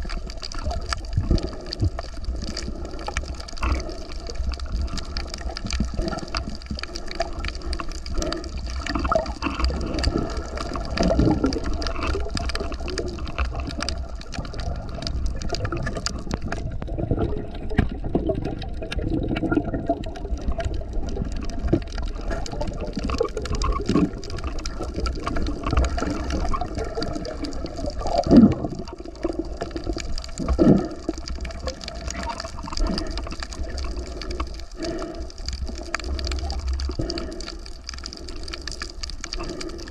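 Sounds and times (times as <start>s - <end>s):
water sloshing and gurgling: 0.0s - 39.9s.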